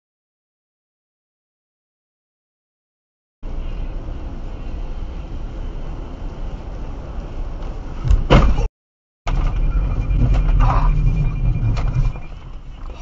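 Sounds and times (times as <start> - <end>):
tyre and rain road noise: 3.4 - 8.7, 9.3 - 13.0.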